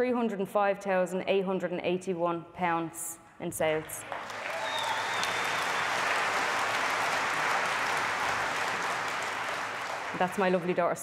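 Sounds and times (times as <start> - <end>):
large audience applauding: 3.8 - 11.0.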